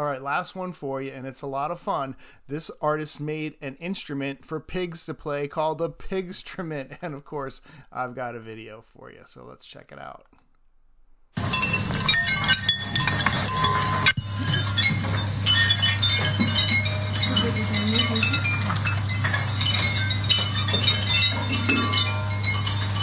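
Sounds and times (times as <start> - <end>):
metal chimes clinking: 11.4 - 23.0
steady low hum: 11.4 - 23.0.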